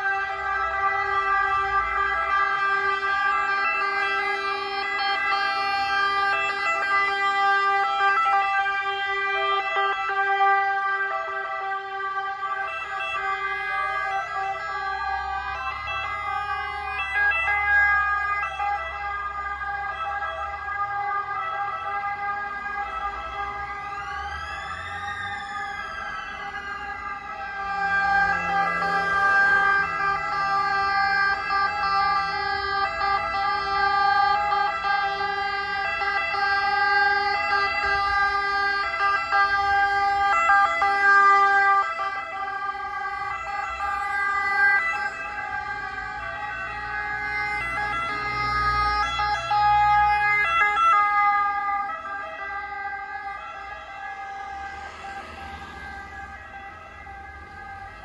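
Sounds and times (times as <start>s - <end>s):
ambulance sirens: 0.0s - 58.0s.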